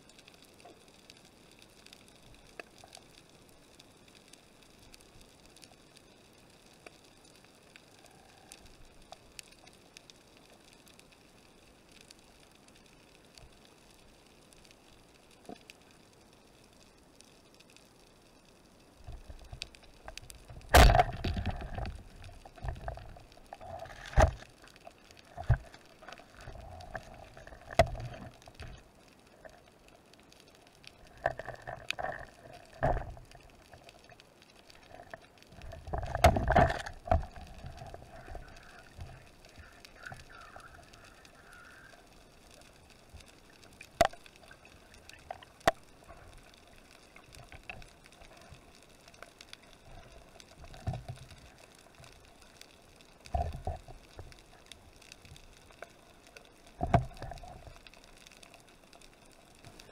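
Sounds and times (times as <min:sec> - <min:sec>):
water sloshing and gurgling: 0:19.1 - 0:29.7, 0:30.9 - 0:34.1, 0:34.7 - 0:40.9
sharp underwater knocks and clacks: 0:20.4 - 0:24.5, 0:35.8 - 0:38.4, 0:56.8 - 0:57.6.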